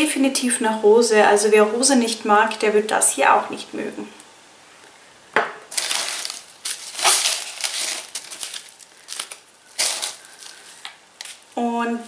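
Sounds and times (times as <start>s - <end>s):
wrapping crinkling and rustling: 5.7s - 11.6s.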